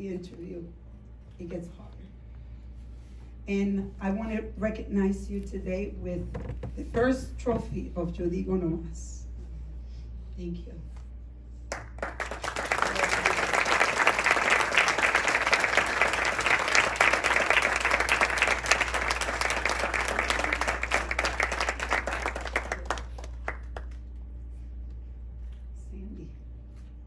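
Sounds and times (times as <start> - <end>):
audience applauding: 11.7 - 24.0.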